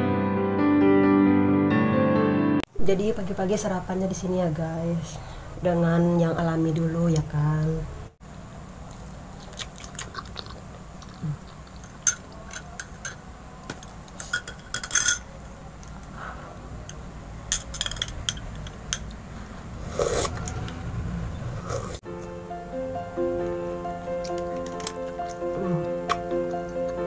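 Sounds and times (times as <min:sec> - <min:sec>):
spoon clinking in tea glass: 0:14.2 - 0:15.3, 0:17.5 - 0:19.1
low background rumble: 0:15.6 - 0:24.3.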